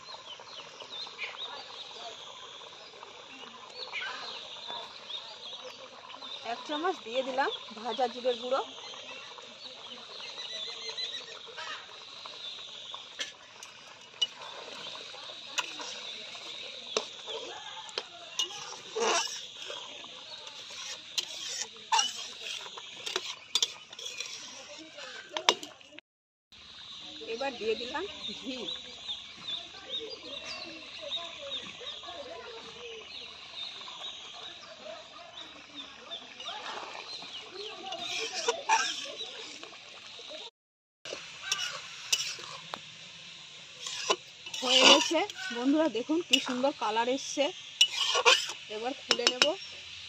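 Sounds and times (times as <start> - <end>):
birds chirping high: 0.0 - 25.9, 26.6 - 40.3, 41.2 - 50.0
metal spatula scraping pot: 12.4 - 25.9, 36.6 - 39.7, 41.1 - 42.8, 43.4 - 49.6.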